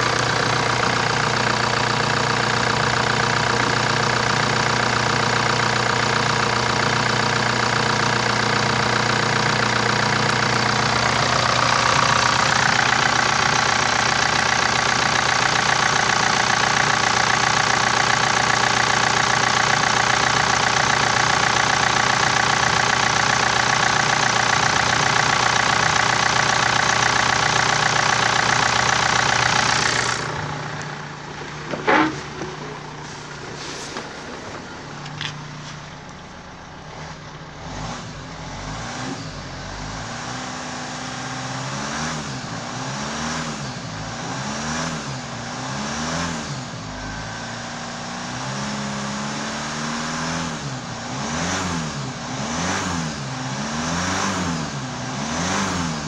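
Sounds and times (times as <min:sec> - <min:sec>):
diesel engine idling: 0:00.0 - 0:40.2.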